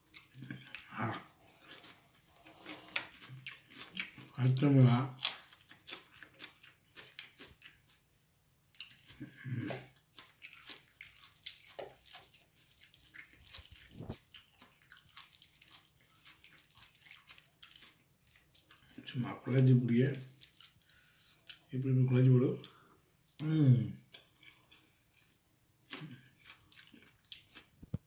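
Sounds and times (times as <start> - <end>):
fingers squelching food: 0.1 - 19.0.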